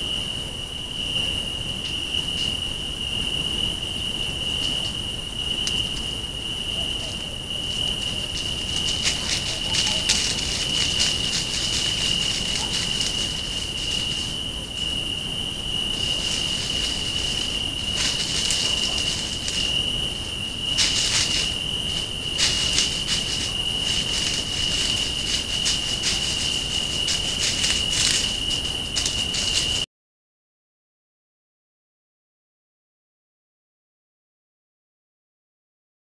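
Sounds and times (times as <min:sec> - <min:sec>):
insect trill: 0:00.0 - 0:29.9
crackling rustles: 0:01.8 - 0:02.6, 0:04.0 - 0:29.8.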